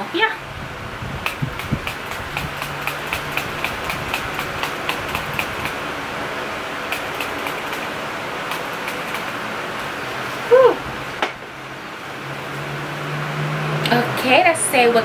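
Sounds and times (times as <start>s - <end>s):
electric fan whirring: 0.0s - 15.0s
rapid even ticking: 1.2s - 5.9s, 6.9s - 9.5s.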